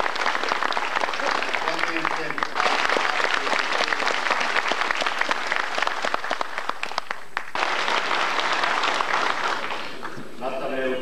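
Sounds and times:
large audience applauding: 0.0 - 10.4.

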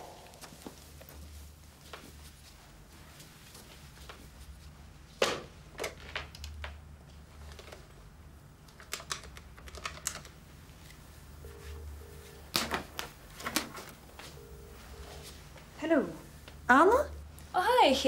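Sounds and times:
double ring tone: 11.4 - 12.5, 14.3 - 15.4.

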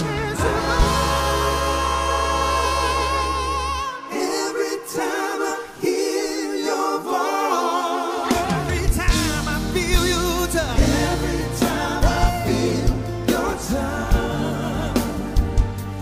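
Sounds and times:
bass guitar: 0.0 - 3.8, 8.7 - 16.0
keyboard: 0.0 - 16.0
voices singing in harmony: 0.0 - 16.0.

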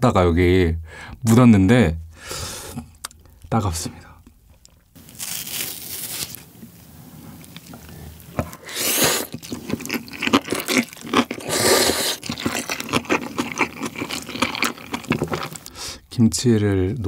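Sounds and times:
wet chewing and lip smacking: 7.4 - 15.8
noodles slurped: 8.4 - 15.8.

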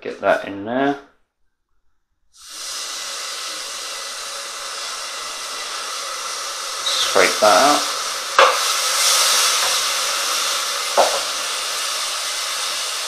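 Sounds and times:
rice sizzling in a hot pan: 2.4 - 13.0.

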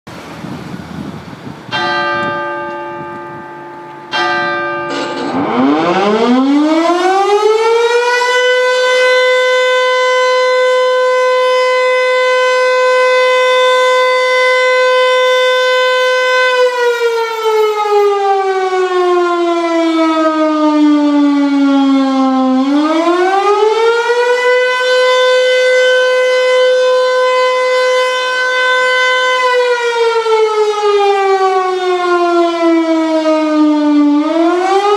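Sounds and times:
alert siren wailing: 4.8 - 34.9.

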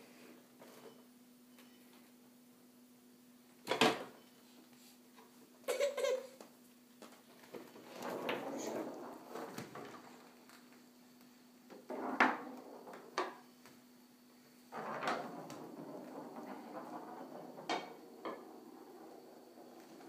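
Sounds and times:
wheels rolling and scraping on floor: 0.1 - 2.2, 6.4 - 20.0.

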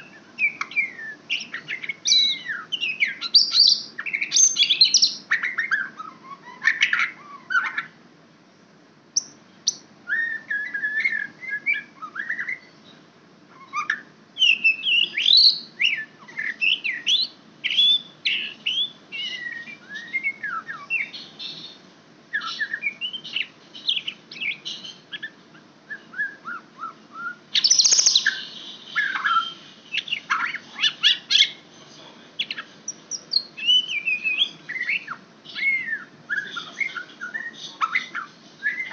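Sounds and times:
bird singing whistled phrases: 0.0 - 7.0, 9.7 - 12.8, 13.6 - 21.2, 22.4 - 28.4, 32.5 - 38.9.

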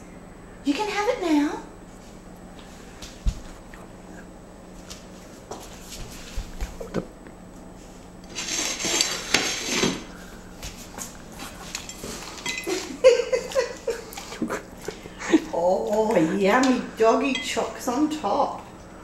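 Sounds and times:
dog scuffling: 4.8 - 6.8, 10.5 - 16.4
dog chewing: 10.6 - 16.4.

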